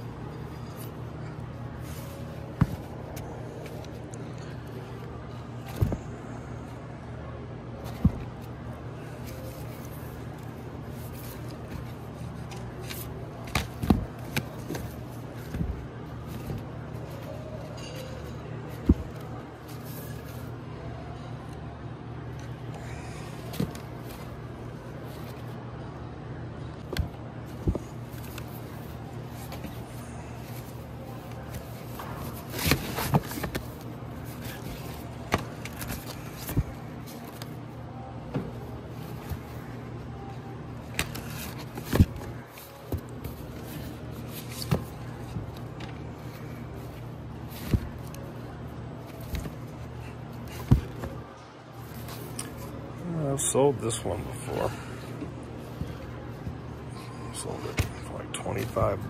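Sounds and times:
steady low hum: 0.0 - 59.0
record sleeves flipped by hand: 9.2 - 17.5, 26.8 - 37.6, 40.8 - 52.7.

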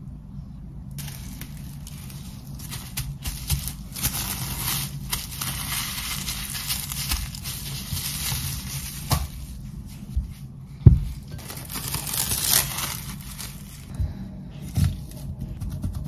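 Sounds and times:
low steady hum: 0.0 - 16.0
cling film crinkling: 1.0 - 10.2, 11.2 - 13.9.

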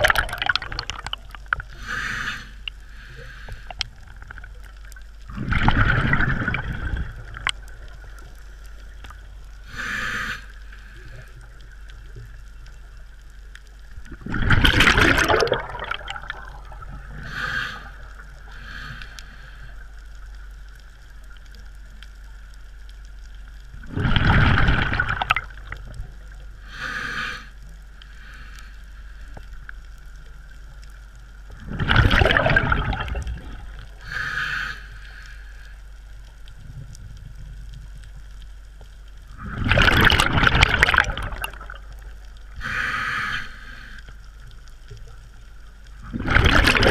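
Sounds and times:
underwater breath bubbles rushing: 0.0 - 4.5, 5.3 - 8.2, 14.0 - 19.2, 23.9 - 25.9, 31.6 - 34.7, 39.3 - 43.6, 46.0 - 46.9
faint regulator hiss: 0.0 - 14.4, 16.0 - 23.9, 25.4 - 31.8, 32.8 - 39.7, 41.0 - 46.1.

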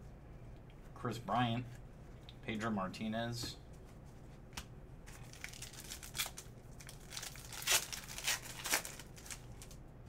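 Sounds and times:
foil wrapper crinkling and tearing: 5.2 - 9.8.

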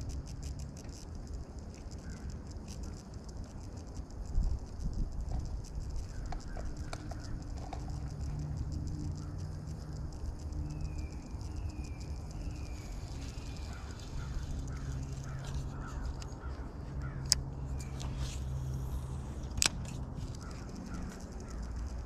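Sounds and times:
fishing reel clicks: 0.0 - 22.0
low steady rumble: 0.0 - 22.0
birds calling: 5.9 - 8.0, 9.1 - 19.2, 20.2 - 22.0.

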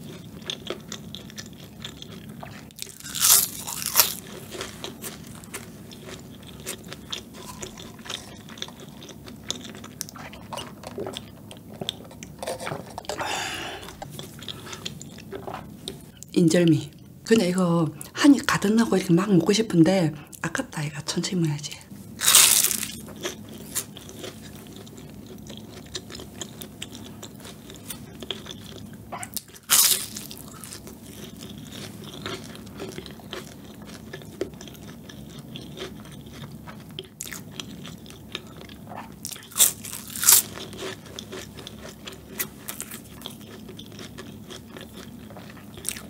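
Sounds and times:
soft chewing: 0.0 - 16.3, 22.3 - 46.0
pastry crust crunching: 0.1 - 10.0, 22.2 - 28.8, 29.4 - 36.4, 39.3 - 46.0.

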